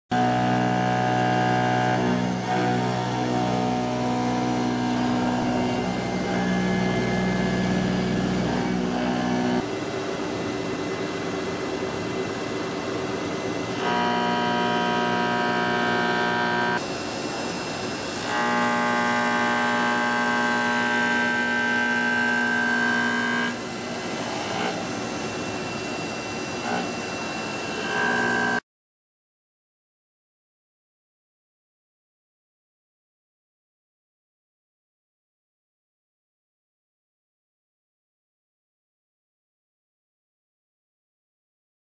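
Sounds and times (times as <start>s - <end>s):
milling cutter cutting metal: 0.1s - 9.7s, 13.4s - 28.6s.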